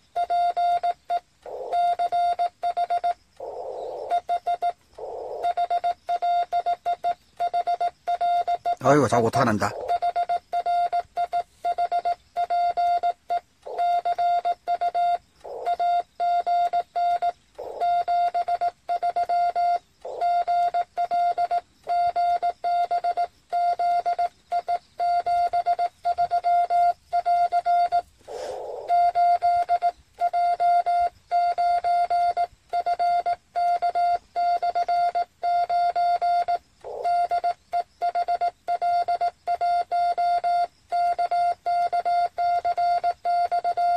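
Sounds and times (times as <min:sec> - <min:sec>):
morse code beeps: 0:00.0 - 0:43.9
radio hiss: 0:08.8 - 0:10.0, 0:28.1 - 0:28.9.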